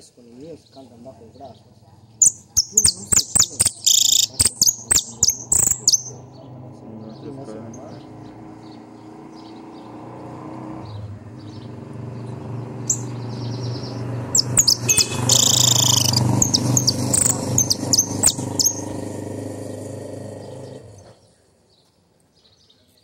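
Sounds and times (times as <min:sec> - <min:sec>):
finch singing: 0:00.0 - 0:09.9, 0:10.8 - 0:19.2.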